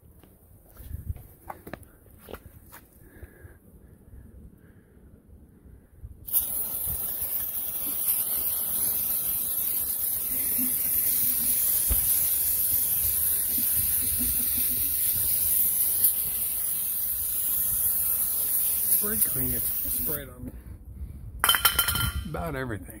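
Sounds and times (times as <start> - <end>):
aerosol can spraying hiss: 6.3 - 20.3.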